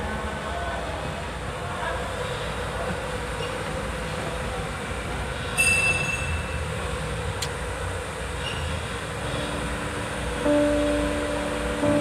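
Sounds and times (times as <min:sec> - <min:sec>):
short high squeal: 0:05.6 - 0:06.5, 0:08.4 - 0:09.6.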